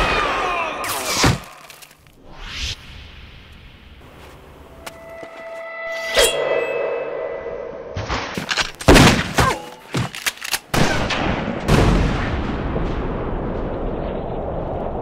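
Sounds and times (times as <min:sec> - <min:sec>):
ringing metallic hit: 0:04.9 - 0:08.0
gunshots and blasts: 0:10.6 - 0:15.0
deep explosion: 0:10.9 - 0:15.0.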